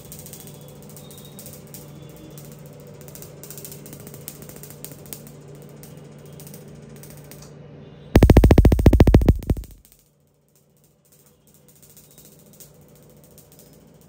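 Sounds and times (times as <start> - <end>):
laser machine snapping clicks: 8.2 - 9.8
machine low hum: 8.2 - 9.8.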